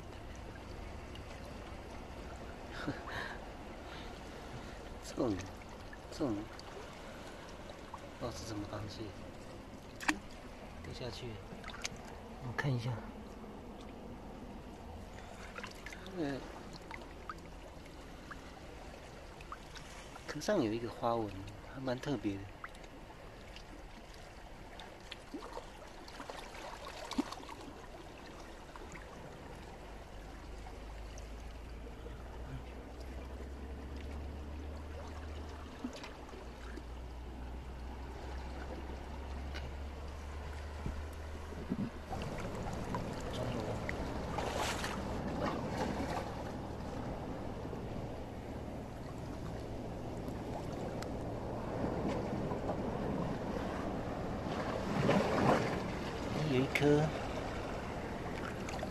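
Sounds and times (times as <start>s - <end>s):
small water splashes: 0.0s - 12.6s, 14.7s - 58.9s
seawater lapping among rocks: 0.0s - 58.9s
low rumble: 28.7s - 56.4s
light ticks: 51.0s - 51.2s.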